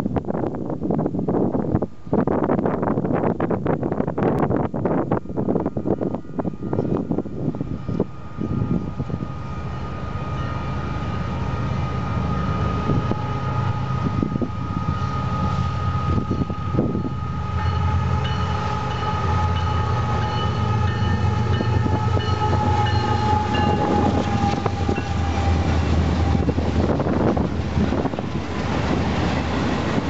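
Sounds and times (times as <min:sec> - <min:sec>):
diesel locomotive engines rumbling: 0:00.0 - 0:30.0
train air horn chord: 0:11.8 - 0:26.5.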